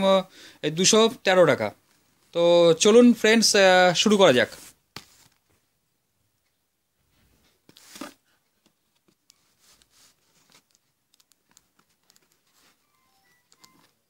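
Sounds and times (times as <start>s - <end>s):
cardboard parcel rustling: 7.5s - 14.0s
small clicks and taps: 10.5s - 12.5s.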